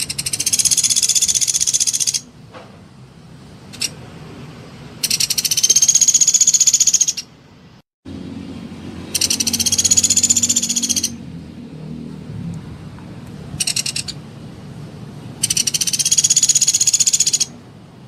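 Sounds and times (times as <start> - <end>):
woodpecker chattering trills: 0.0 - 2.3, 3.7 - 4.0, 5.0 - 7.3, 9.1 - 11.2, 13.6 - 14.2, 15.4 - 17.6.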